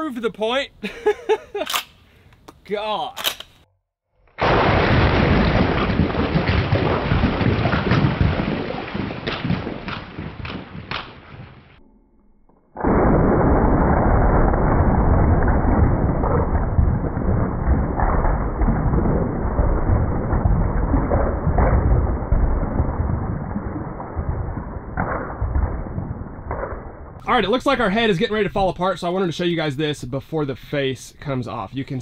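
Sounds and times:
sharp cracks of debris: 4.2s - 11.8s, 12.7s - 27.2s
shotgun blast rumble: 4.4s - 11.8s, 12.8s - 27.2s
slowed-down low rumble: 4.4s - 30.2s.

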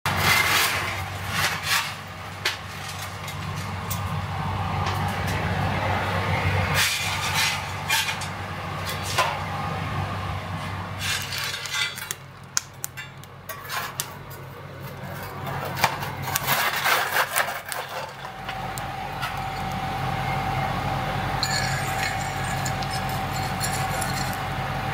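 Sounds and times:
coal clinking and scraping: 0.1s - 4.2s, 6.7s - 9.4s, 10.6s - 19.9s, 21.4s - 24.9s
high whine: 0.1s - 11.6s, 18.0s - 24.9s
steady low hum: 0.1s - 24.9s.

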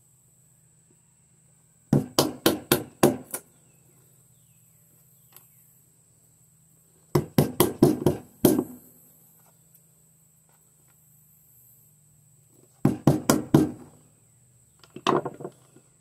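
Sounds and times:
baton knocking knife through wood: 1.9s - 3.4s, 7.2s - 8.8s, 12.8s - 13.9s.

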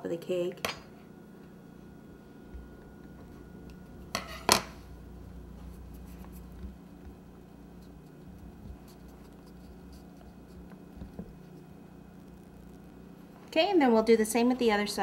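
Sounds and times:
hands rustling fondant: 5.3s - 12.9s.

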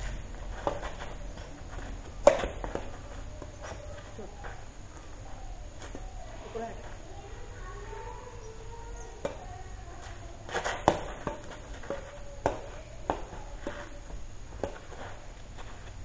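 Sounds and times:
rackets hitting shuttlecock: 0.5s - 4.6s, 10.5s - 15.2s.

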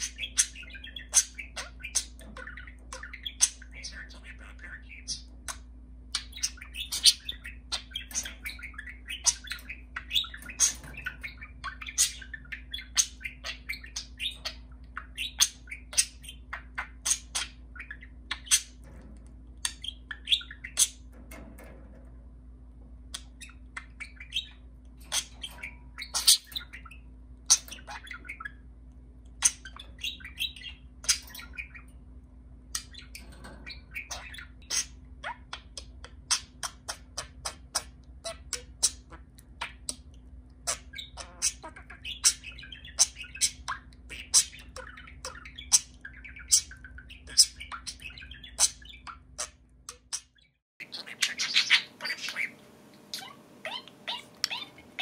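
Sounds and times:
budgerigar chirping and warbling: 0.0s - 21.4s, 23.2s - 28.7s, 29.3s - 32.0s, 32.7s - 55.0s.

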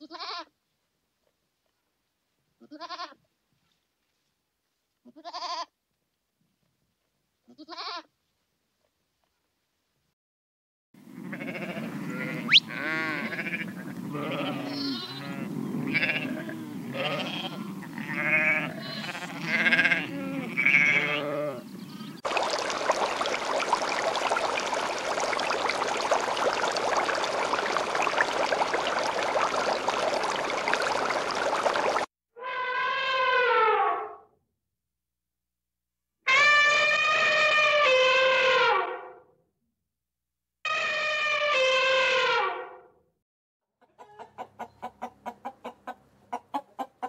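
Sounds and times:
animals calling: 11.2s - 32.1s.

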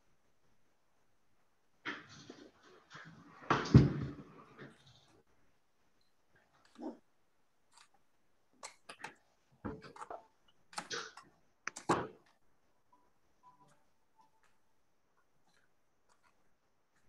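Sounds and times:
handling clicks and knocks: 8.6s - 12.5s.

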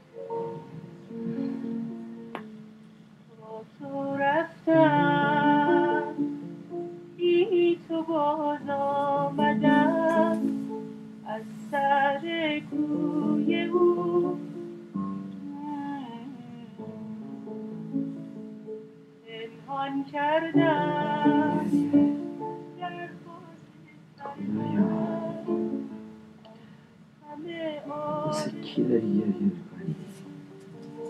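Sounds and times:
soft musical accompaniment: 0.0s - 31.0s
woman singing slow melody: 1.1s - 2.4s, 3.3s - 6.3s, 7.2s - 14.6s, 15.4s - 16.9s, 19.2s - 26.6s, 27.2s - 31.0s.

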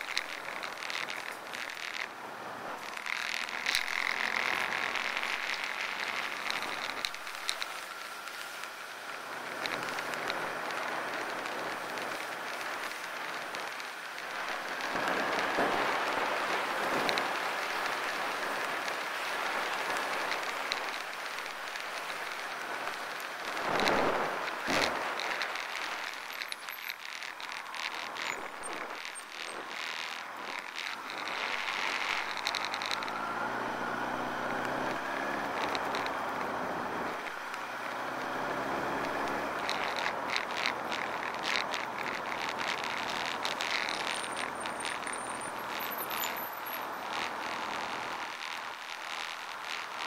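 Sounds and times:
road noise: 0.0s - 50.0s.

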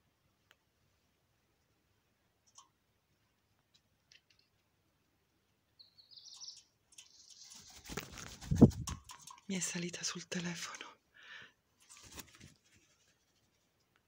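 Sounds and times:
faint clicks: 2.4s - 2.8s, 3.4s - 4.7s
high bird chirps: 5.8s - 7.8s.

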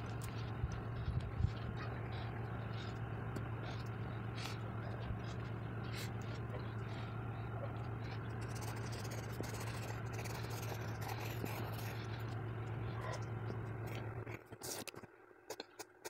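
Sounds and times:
steady low hum: 0.0s - 16.0s
pencil scratching on paper: 8.2s - 12.3s.

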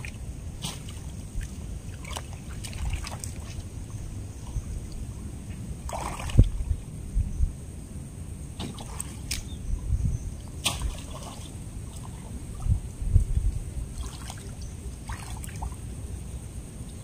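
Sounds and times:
hands sloshing in muddy water: 0.0s - 5.1s, 5.8s - 6.6s, 8.6s - 9.5s, 10.6s - 12.6s, 13.9s - 15.8s
water splashes: 0.0s - 5.2s, 5.8s - 6.7s, 8.5s - 9.6s, 10.5s - 12.8s, 13.4s - 15.9s.

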